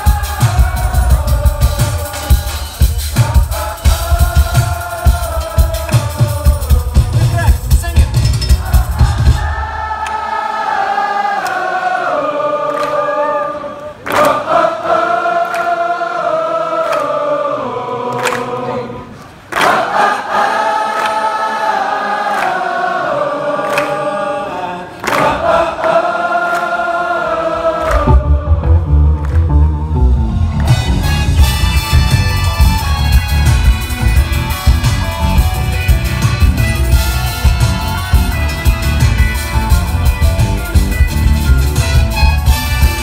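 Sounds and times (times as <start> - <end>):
voices singing in harmony: 0.0 - 7.4, 8.2 - 29.0
band with heavy bass: 0.0 - 9.8, 27.9 - 43.0.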